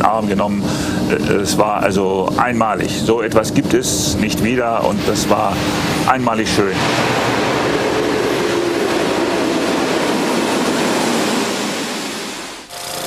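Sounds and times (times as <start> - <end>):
passenger train passing: 4.7 - 12.7.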